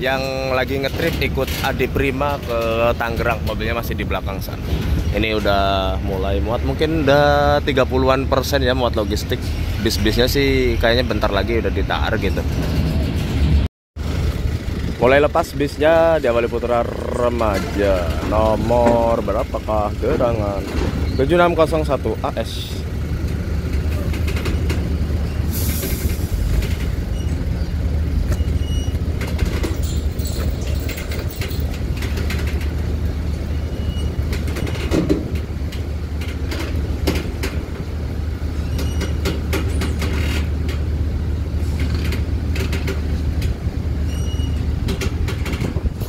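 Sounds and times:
coach diesel engine idling: 0:14.0 - 0:45.2
brake air hiss: 0:25.4 - 0:26.8.

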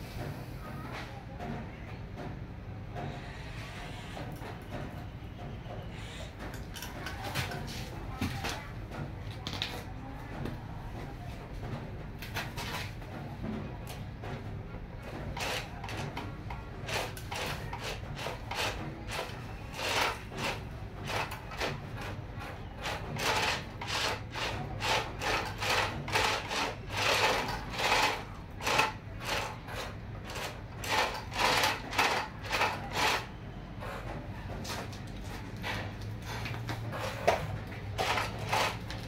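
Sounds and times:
toy truck motor whirring: 0:16.9 - 0:22.2, 0:22.8 - 0:33.3.

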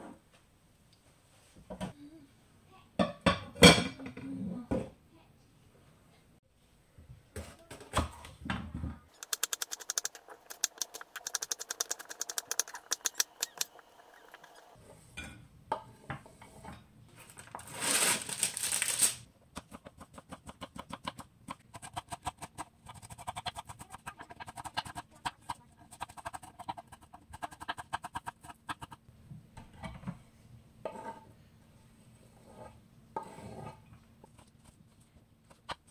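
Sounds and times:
plastic tray crinkling: 0:17.4 - 0:19.2.

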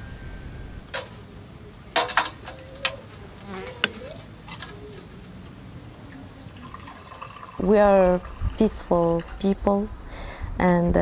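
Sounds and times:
short wavering buzz: 0:00.0 - 0:00.8, 0:03.0 - 0:04.2.

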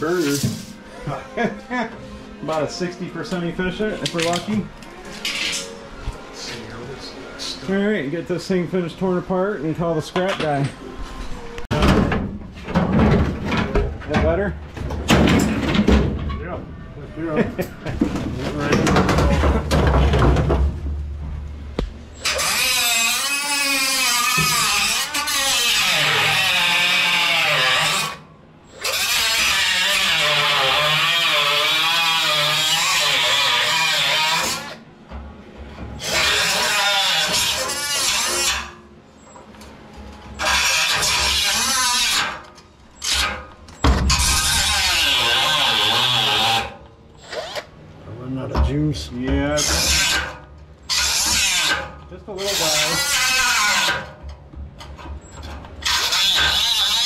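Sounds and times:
low rumbling handling noise: 0:10.4 - 0:22.2, 0:34.8 - 0:36.0, 0:54.1 - 0:55.9
angle grinder cutting sheet metal: 0:22.2 - 0:28.2, 0:28.8 - 0:34.8, 0:36.0 - 0:38.8, 0:40.3 - 0:42.4, 0:44.1 - 0:47.7, 0:49.6 - 0:54.2, 0:55.8 - 0:57.0.

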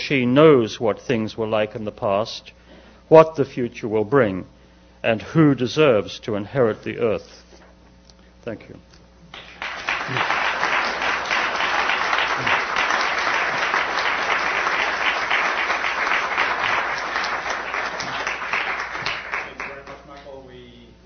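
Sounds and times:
audience applauding: 0:09.3 - 0:20.4.

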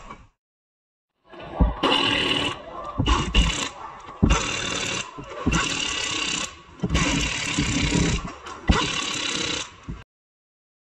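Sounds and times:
power tool running: 0:01.9 - 0:10.0.

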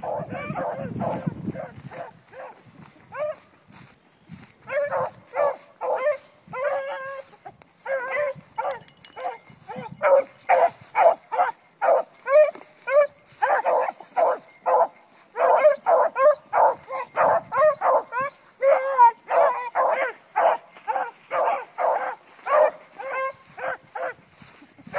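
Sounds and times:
hounds baying: 0:00.0 - 0:03.6, 0:04.6 - 0:24.9.

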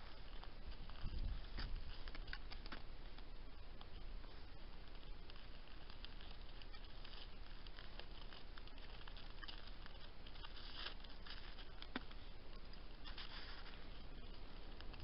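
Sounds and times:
hooves crunching in frozen snow: 0:00.0 - 0:15.0
microphone hiss: 0:00.0 - 0:15.0.

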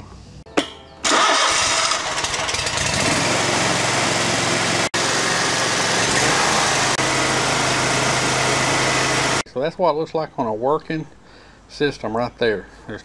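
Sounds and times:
mower engine starting and running: 0:01.0 - 0:09.4.

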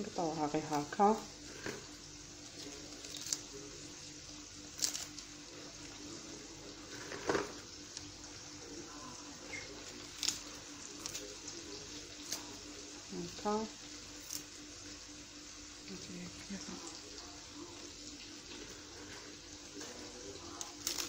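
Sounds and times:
lettuce leaves tearing: 0:02.4 - 0:03.8, 0:04.7 - 0:05.4, 0:09.4 - 0:12.8, 0:14.2 - 0:14.6, 0:19.8 - 0:21.0
crisp snaps: 0:02.6 - 0:03.6, 0:04.7 - 0:05.3, 0:09.6 - 0:11.4, 0:12.2 - 0:12.6, 0:20.6 - 0:21.0.

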